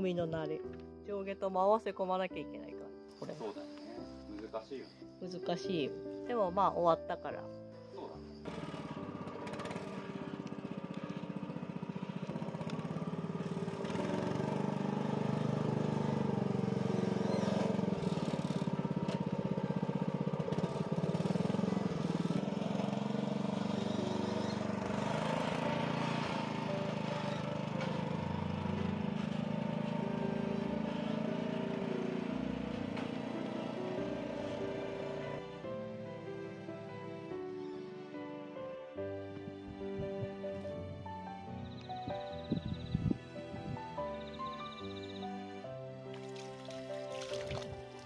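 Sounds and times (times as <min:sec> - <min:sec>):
small engine putter: 0:08.4 - 0:35.2.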